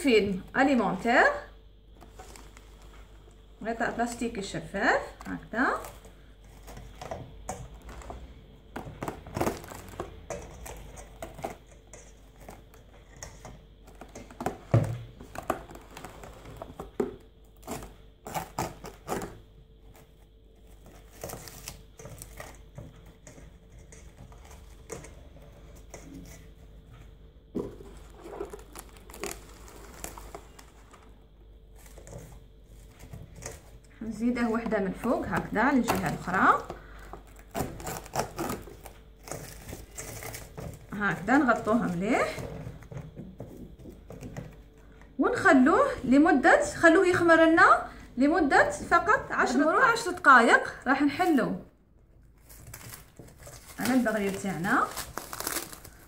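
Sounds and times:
cling film crinkling: 0:28.1 - 0:30.9, 0:52.4 - 0:56.0.

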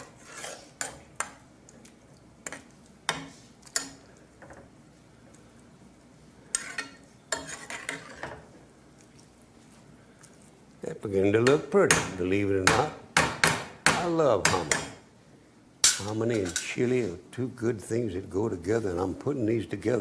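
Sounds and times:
metal spoon stirring in pot: 0:00.0 - 0:04.8, 0:06.4 - 0:08.5.

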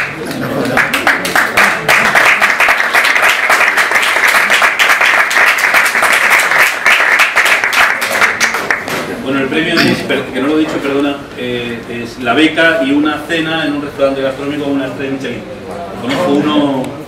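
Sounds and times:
people applauding: 0:00.0 - 0:09.0.

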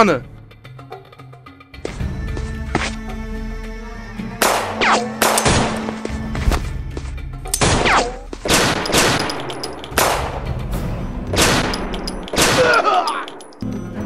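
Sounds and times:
handgun shots: 0:04.4 - 0:05.9.

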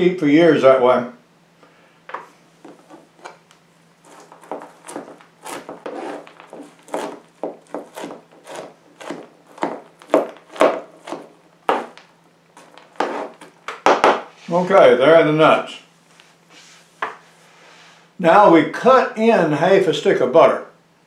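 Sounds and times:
knife chopping on plastic board: 0:04.1 - 0:14.3.

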